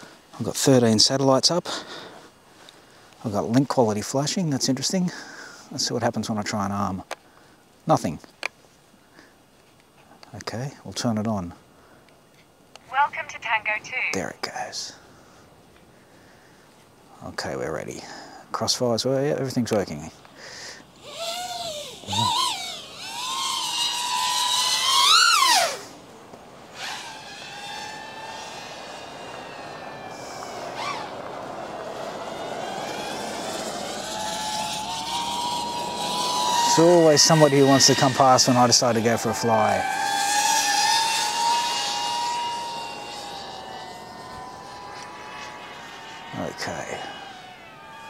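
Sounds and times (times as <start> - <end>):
drone propellers whining: 20.9 - 48.0.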